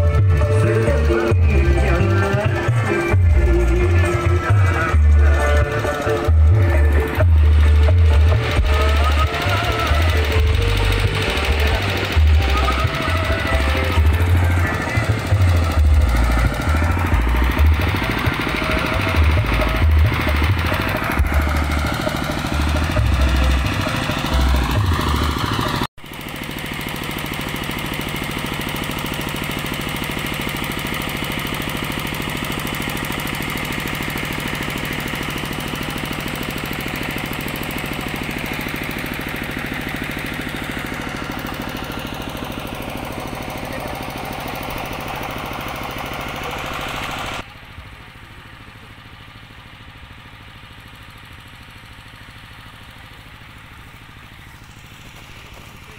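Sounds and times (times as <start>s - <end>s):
heavy bass pulses: 0.0s - 25.9s
small engine rattling: 0.0s - 55.9s.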